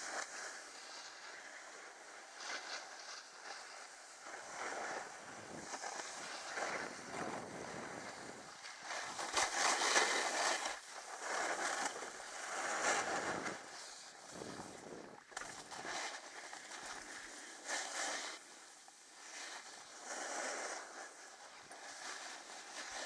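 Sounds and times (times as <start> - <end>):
snowboard edge scraping snow: 0.0 - 23.0
wind noise on microphone: 4.5 - 16.2.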